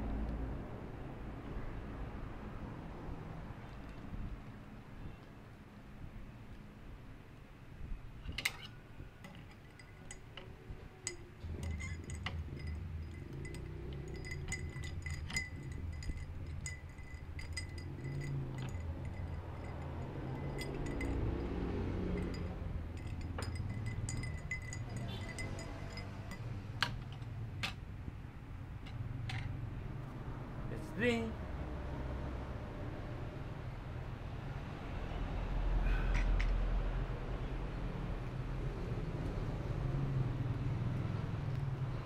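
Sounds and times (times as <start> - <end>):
low steady hum: 3.6 - 30.8
spoon clinking against glass: 8.3 - 27.8.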